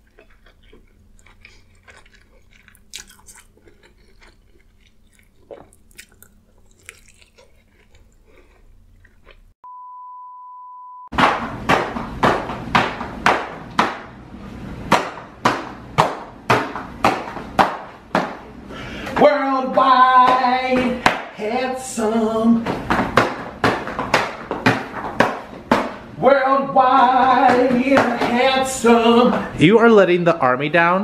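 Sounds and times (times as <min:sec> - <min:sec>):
faint chewing: 0:00.0 - 0:09.6
steady electronic beep: 0:09.6 - 0:11.1
stomping footsteps on tile floor: 0:11.1 - 0:14.2, 0:14.8 - 0:29.7.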